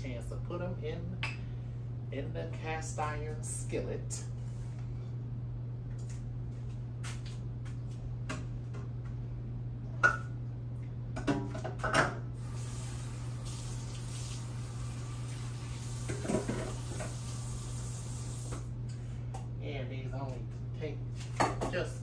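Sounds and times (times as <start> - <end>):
low electrical hum: 0.0 - 22.0
tap running: 15.8 - 17.4.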